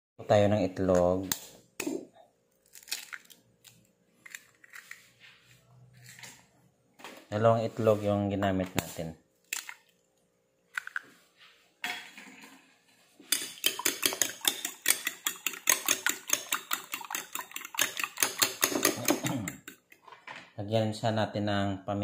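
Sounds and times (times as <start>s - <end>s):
fork clinking against bowl: 13.3s - 19.9s.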